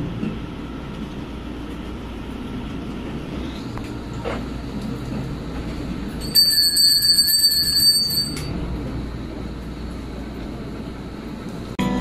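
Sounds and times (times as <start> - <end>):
altar bells rattling: 6.2 - 8.5.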